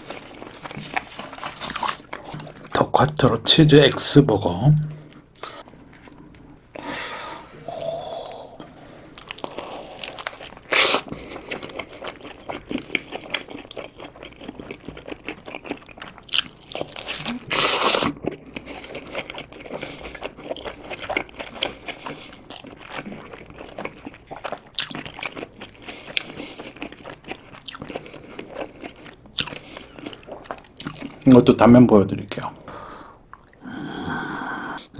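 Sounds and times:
chewing with small crackles: 0.0 - 2.8, 8.2 - 31.6, 32.3 - 33.7.

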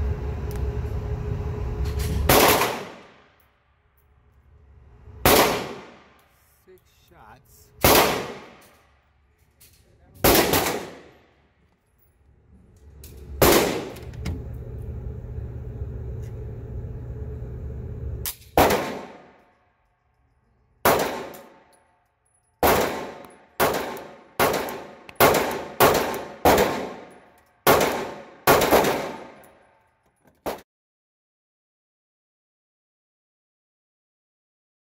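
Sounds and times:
steady low hum: 0.0 - 3.2, 3.8 - 19.4
pistol shots ringing indoors: 2.3 - 3.6, 5.3 - 6.4, 7.8 - 9.2, 10.2 - 11.5, 13.4 - 14.0, 18.3 - 19.7, 20.8 - 22.0, 22.6 - 29.8.

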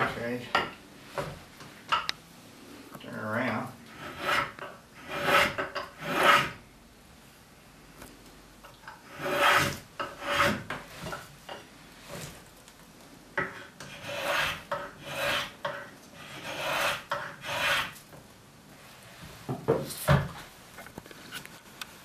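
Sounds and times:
hand tool shaving wood: 9.1 - 10.7, 13.8 - 18.0.

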